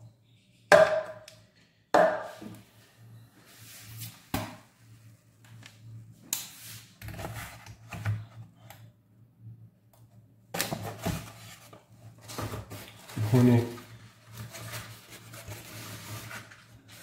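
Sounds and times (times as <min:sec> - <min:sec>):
plastic food bag rustling: 0:12.2 - 0:17.0.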